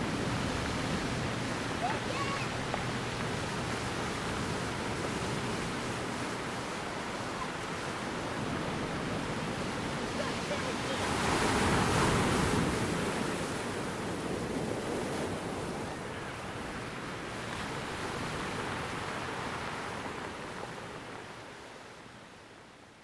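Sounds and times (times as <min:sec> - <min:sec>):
sea waves washing in: 0:00.0 - 0:23.0.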